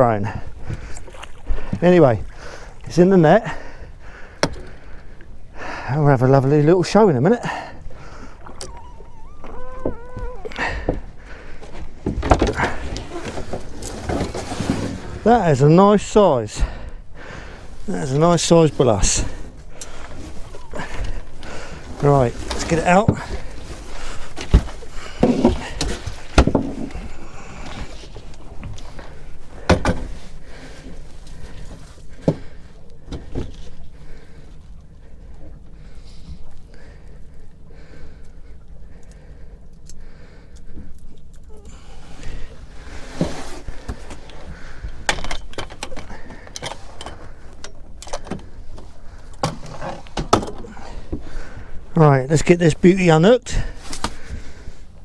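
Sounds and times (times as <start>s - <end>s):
knocks and thuds on boat: 9.7s - 15.0s, 24.4s - 27.2s, 29.6s - 30.2s, 49.4s - 51.3s
fishing gear knocking and rattling: 44.9s - 50.7s.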